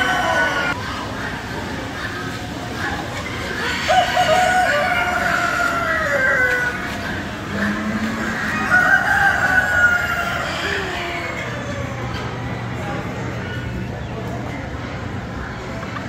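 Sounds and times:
rooster crowing: 0.0s - 0.8s, 8.4s - 11.1s.

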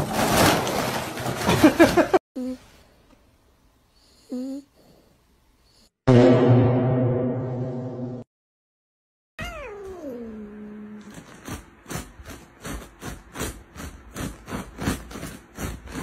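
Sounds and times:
cat meowing: 9.4s - 10.7s.

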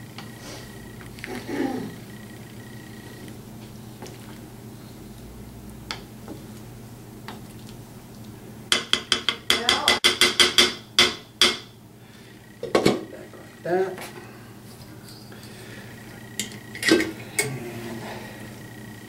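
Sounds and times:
wooden spoon knocking on pot: 8.7s - 11.7s.

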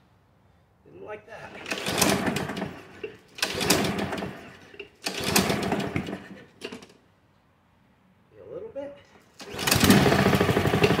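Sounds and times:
mower engine cranking: 1.5s - 7.0s, 9.3s - 11.0s
recoil starter pulls: 1.5s - 7.0s, 9.3s - 11.0s.

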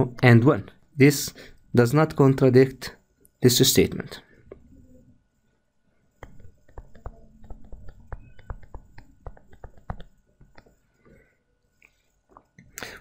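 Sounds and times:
stylus tapping and scraping on tablet: 6.1s - 12.6s.

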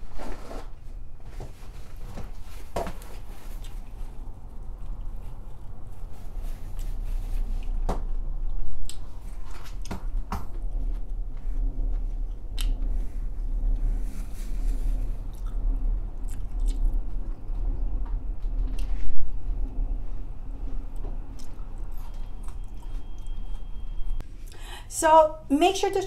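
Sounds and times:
person chewing food: 3.4s - 7.8s, 8.4s - 13.0s, 15.3s - 15.6s, 16.2s - 17.4s, 21.0s - 23.7s.

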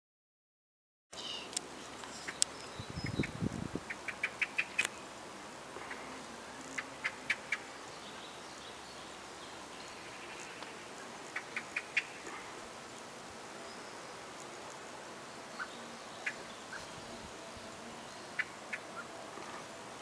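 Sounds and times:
faint steady hiss: 1.2s - 20.0s
small bird chirping: 2.1s - 5.0s, 15.4s - 19.1s.

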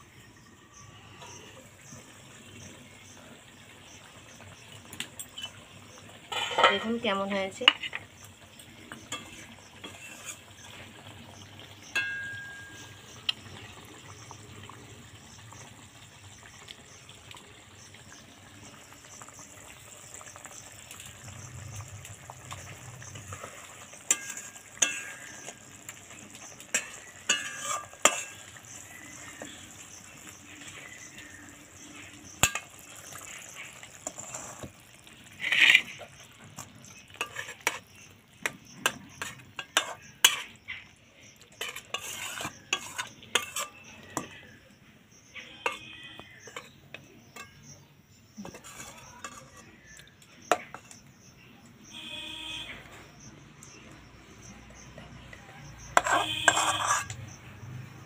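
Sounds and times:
faint simmering: 0.0s - 58.0s
spatula scraping metal pan: 6.3s - 8.0s, 9.0s - 10.6s, 23.1s - 25.6s, 26.7s - 30.0s, 33.5s - 34.7s, 35.3s - 36.0s, 36.9s - 38.1s, 38.8s - 40.6s, 41.6s - 44.4s, 45.4s - 47.7s, 48.4s - 51.0s, 55.8s - 57.4s.

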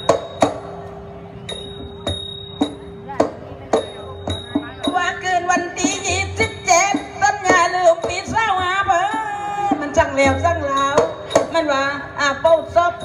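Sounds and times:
light percussion clinks: 0.0s - 7.2s
steady held tone: 0.0s - 7.2s.

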